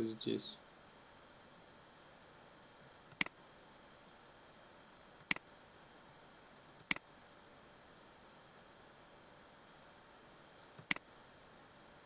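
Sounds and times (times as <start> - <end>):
faint steady hiss: 0.0 - 12.0
computer mouse clicks: 3.1 - 3.4, 10.8 - 11.2.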